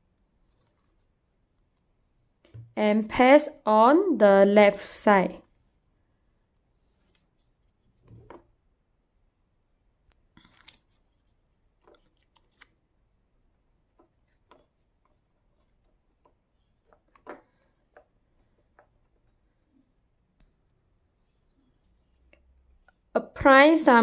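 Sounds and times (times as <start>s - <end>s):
paper rustling and light taps: 10.4s - 12.8s.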